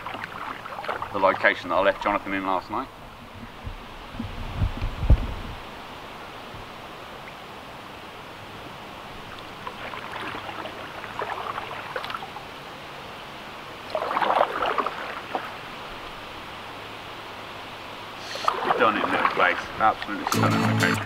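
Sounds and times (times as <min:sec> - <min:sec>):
paddle splashing in water: 0:00.0 - 0:01.6, 0:09.3 - 0:12.5, 0:13.9 - 0:15.7, 0:18.2 - 0:20.3
steady background hiss: 0:00.0 - 0:21.0.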